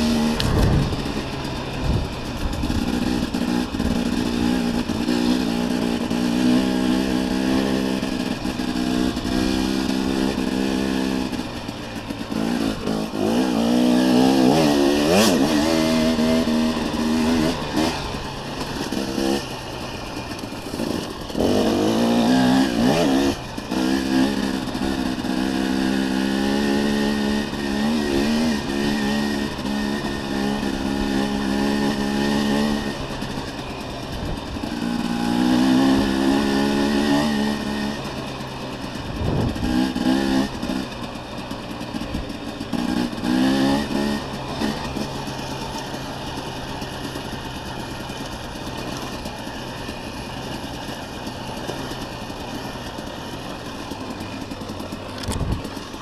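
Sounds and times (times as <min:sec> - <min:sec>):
dirt bike engine revving: 0:00.0 - 0:56.0.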